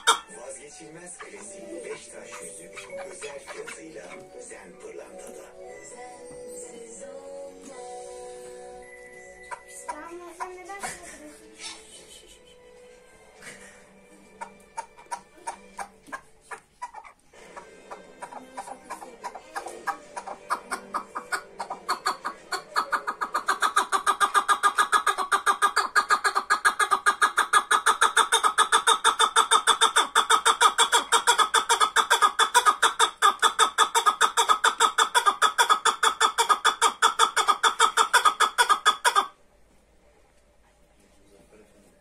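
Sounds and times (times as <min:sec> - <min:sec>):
partridge clucking calls: 0:00.0 - 0:04.6, 0:09.4 - 0:10.6, 0:14.4 - 0:39.4.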